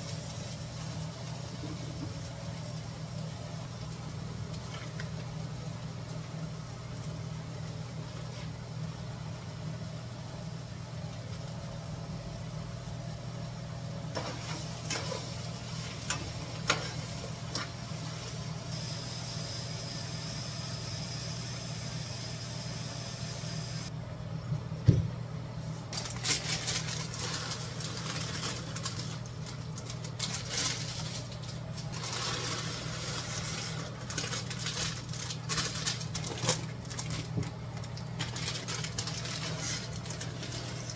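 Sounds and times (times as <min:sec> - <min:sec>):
kitchen vent fan humming: 0:00.0 - 0:40.9
squash sizzling in skillet: 0:14.1 - 0:23.4.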